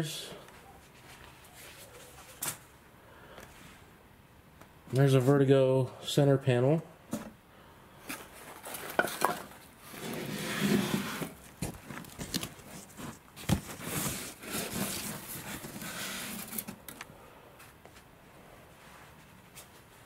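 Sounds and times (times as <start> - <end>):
bubble-wrap rustling and scraping: 8.2 - 16.9.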